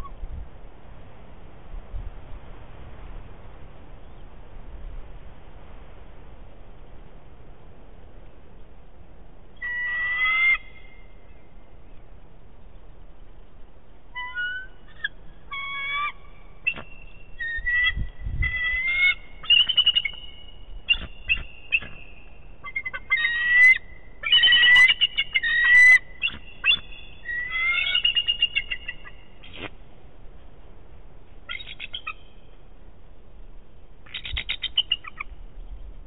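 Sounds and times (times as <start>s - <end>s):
eagles chittering and whistling: 9.6s - 11.1s, 14.1s - 29.7s, 31.5s - 32.4s, 34.0s - 35.3s.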